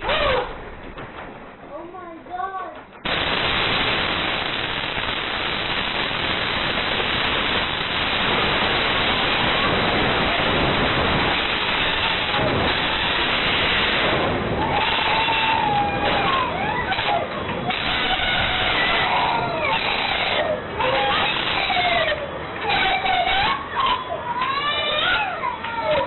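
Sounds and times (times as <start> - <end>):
explosion blast wave: 3.0 - 16.5
loud rushing roar: 3.0 - 21.4.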